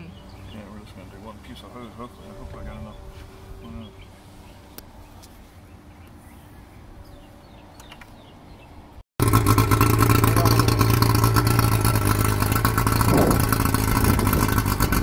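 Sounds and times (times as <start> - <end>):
outboard motor running loudly: 9.2 - 15.0.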